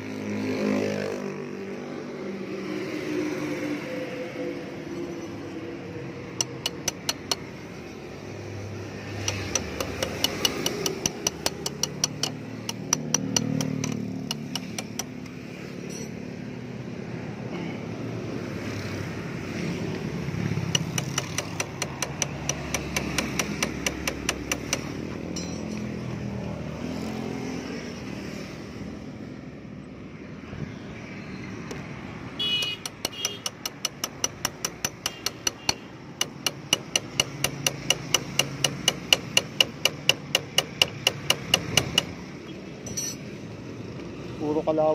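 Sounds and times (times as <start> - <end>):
passing traffic rumble: 0.0 - 44.9
metal-on-metal tapping: 6.4 - 7.6, 9.2 - 16.2, 20.6 - 26.0, 32.6 - 43.3.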